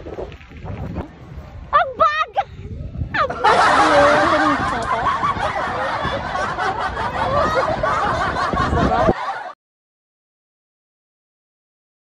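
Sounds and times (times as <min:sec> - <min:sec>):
people laughing and giggling: 0:03.2 - 0:09.6.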